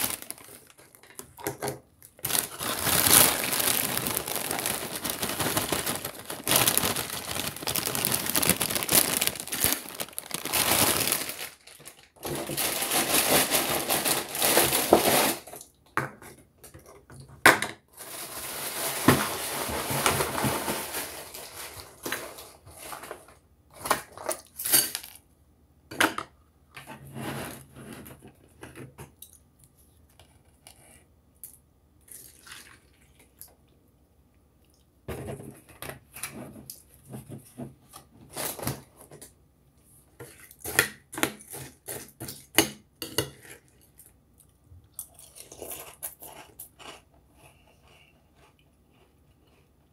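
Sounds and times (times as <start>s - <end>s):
crunching dry cereal: 0.0s - 1.4s, 2.0s - 15.8s, 17.9s - 25.2s, 43.2s - 49.9s.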